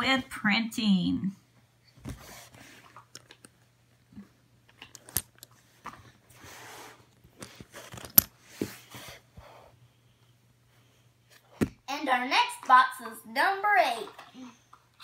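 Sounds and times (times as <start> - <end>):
plastic toy rustling and scraping: 4.8 - 9.2.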